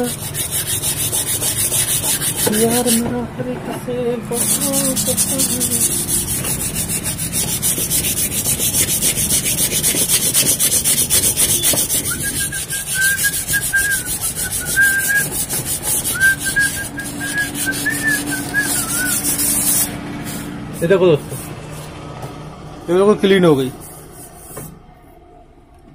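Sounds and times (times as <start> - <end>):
sandpaper scratching on metal: 0.0 - 3.1, 4.3 - 21.9, 23.4 - 24.7
thin high whistle: 11.5 - 15.3, 16.1 - 19.3.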